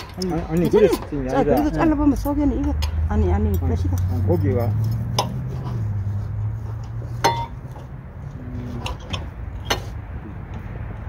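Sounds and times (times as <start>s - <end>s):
cutlery clinking and scraping on plates: 0.0s - 6.1s, 6.7s - 7.9s.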